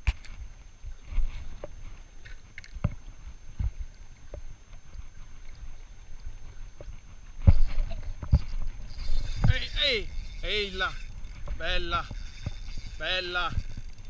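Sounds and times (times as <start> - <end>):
wind rumble on microphone: 2.8 - 14.0
fishing rod handling clicks: 8.3 - 14.0.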